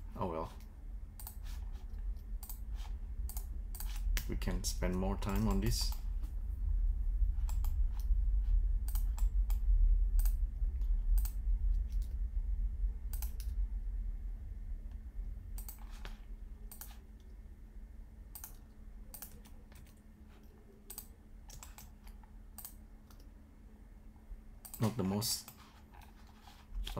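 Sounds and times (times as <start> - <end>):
low rumble: 0.0 - 19.2.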